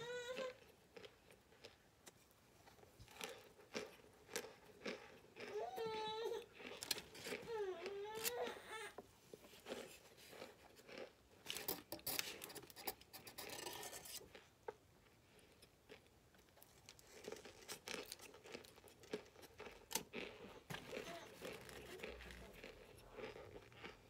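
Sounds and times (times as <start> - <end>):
crunchy chewing: 0.3 - 1.8, 2.7 - 8.6, 9.5 - 24.0.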